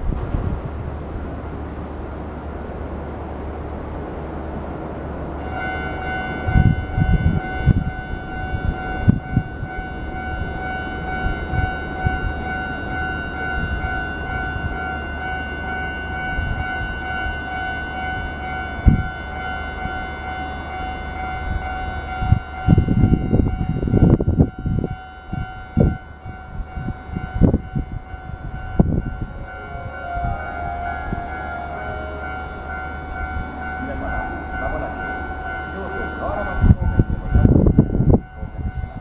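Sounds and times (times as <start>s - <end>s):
low rumble: 0.0s - 5.5s
level crossing warning bell: 1.6s - 39.0s.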